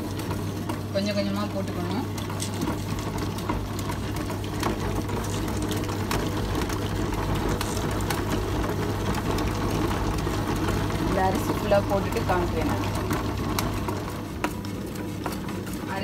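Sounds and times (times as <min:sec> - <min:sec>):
wet grinder motor hum: 0:00.0 - 0:16.0.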